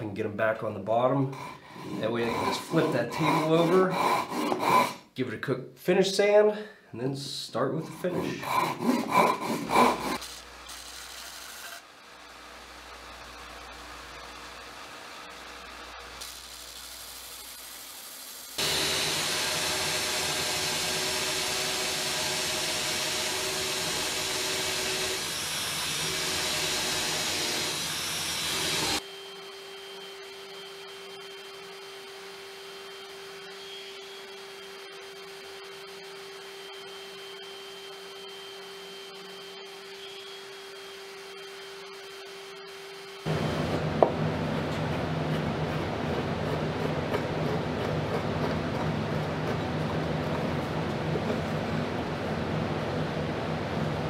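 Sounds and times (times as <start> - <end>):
belt sander rushing: 1.3 - 5.0, 8.0 - 11.8, 17.1 - 29.0
orbital sander humming: 1.4 - 5.0, 8.0 - 11.7, 16.0 - 29.0, 30.0 - 52.6.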